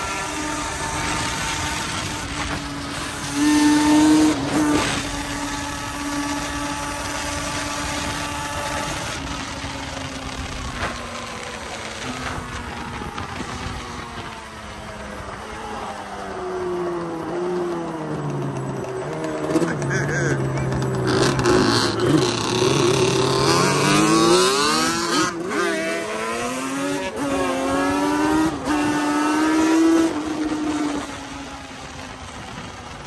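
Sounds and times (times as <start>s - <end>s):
wind noise: 0.0s - 15.6s
road noise: 0.0s - 33.0s
vehicle engine running: 17.0s - 23.4s.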